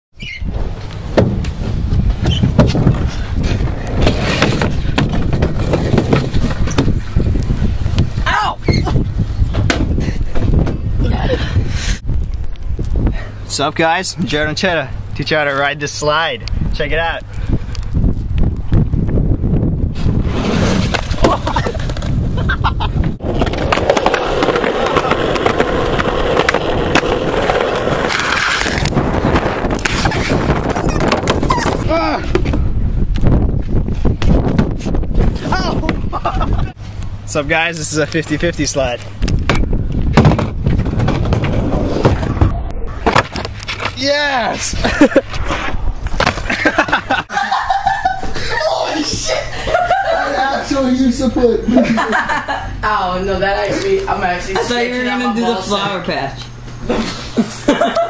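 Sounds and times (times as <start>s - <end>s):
skateboard wheels rolling: 0.2s - 11.0s, 19.8s - 32.8s, 39.3s - 44.1s
low rumble of sliding: 0.5s - 13.2s, 17.4s - 37.2s, 38.3s - 44.0s
knocks and squeaks on plastic: 2.1s - 3.6s, 29.9s - 32.6s.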